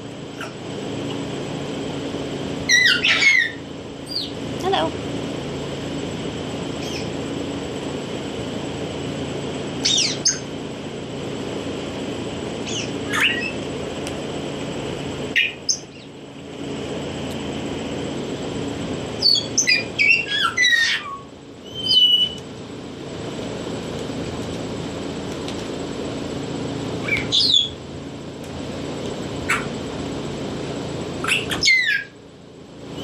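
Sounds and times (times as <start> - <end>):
steady low hum: 0.0 - 33.0
parrots whistling and squawking: 2.7 - 4.3, 9.8 - 10.4, 12.6 - 13.6, 19.2 - 22.4, 27.0 - 27.8, 31.2 - 32.2.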